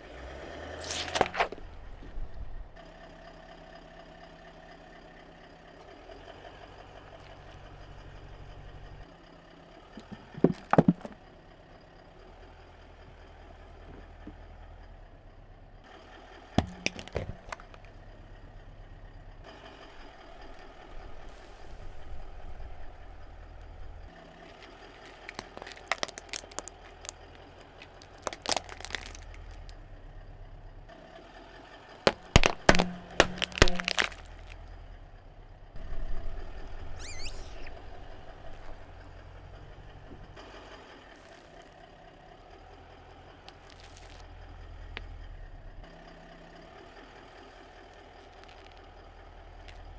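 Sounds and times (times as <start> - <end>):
car engine idling: 0.0 - 49.9
plastic toys cracking under tyre: 0.8 - 1.6, 16.6 - 17.9, 24.4 - 29.8, 32.1 - 34.6, 43.5 - 44.3, 48.2 - 48.9
balloons squashed by tyre: 32.1 - 34.6.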